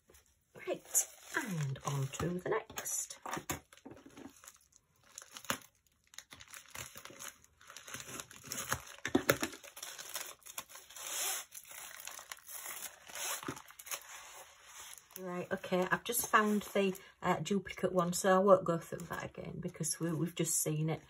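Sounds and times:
plastic mailer crinkling: 0.6 - 17.0.

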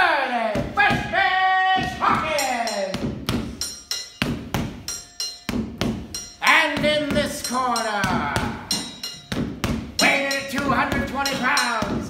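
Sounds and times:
punches hitting focus mitts: 4.2 - 4.9, 5.5 - 6.2, 8.0 - 11.2.

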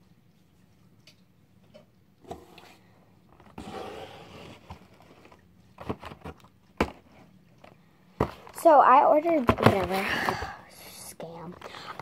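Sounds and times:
rustling and scraping: 2.2 - 10.5
cardboard boxes knocking: 9.3 - 10.4.

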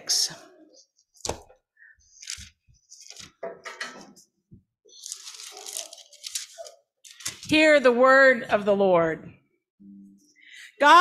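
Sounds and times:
book pages rustling: 2.1 - 3.4, 4.9 - 7.6.

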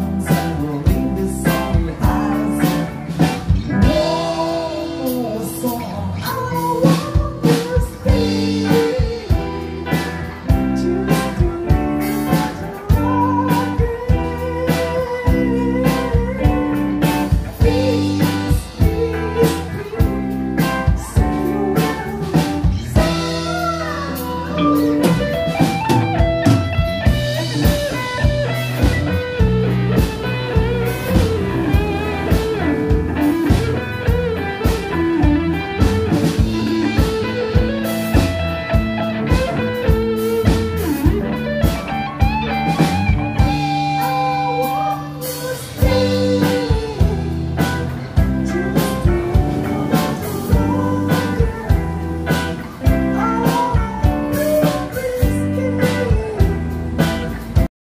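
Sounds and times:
bass guitar: 0.0 - 57.7
electric guitar: 0.0 - 57.7
drum kit hits: 22.4 - 44.3.

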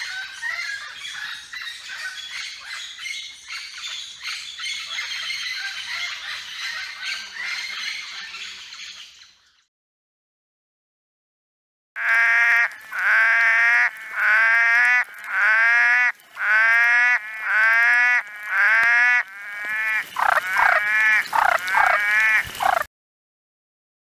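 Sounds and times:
tree frog calling: 12.0 - 22.9.

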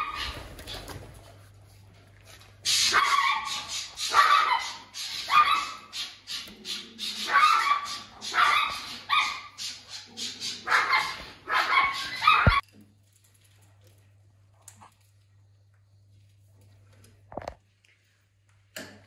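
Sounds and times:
raccoon high-pitched cries: 2.7 - 12.6.

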